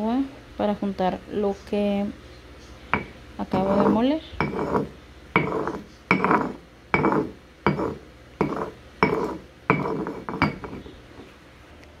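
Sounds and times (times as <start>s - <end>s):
stone pestle grating on stone: 3.0s - 11.0s.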